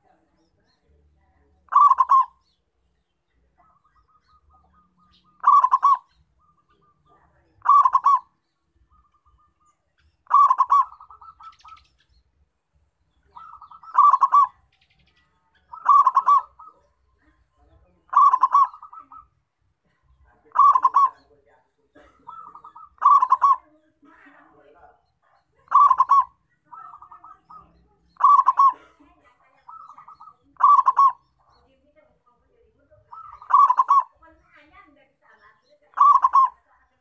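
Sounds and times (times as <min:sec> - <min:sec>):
dove cooing: 0:01.5 - 0:02.6, 0:03.6 - 0:08.3, 0:08.9 - 0:12.0, 0:13.2 - 0:19.4, 0:20.4 - 0:24.0, 0:25.3 - 0:31.7, 0:32.9 - 0:34.2, 0:35.9 - 0:36.7.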